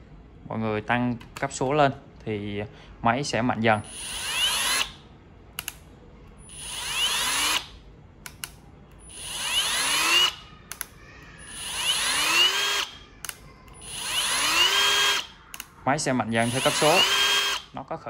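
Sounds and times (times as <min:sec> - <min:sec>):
drill motor whining: 0:03.8 - 0:05.0, 0:06.4 - 0:07.8, 0:09.0 - 0:10.5, 0:11.3 - 0:15.4, 0:16.3 - 0:17.8
short clicks: 0:05.6 - 0:05.9.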